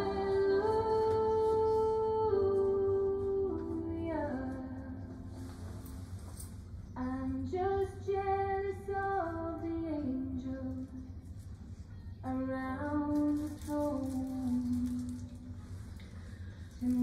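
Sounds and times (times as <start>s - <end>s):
person singing slow melody: 0.0s - 5.9s, 12.2s - 17.0s
steady low hum: 0.0s - 17.0s.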